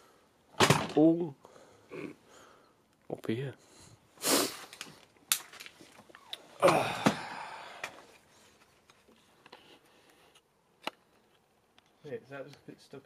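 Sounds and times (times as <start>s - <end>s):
breathy sigh-like sound: 6.6s - 8.2s.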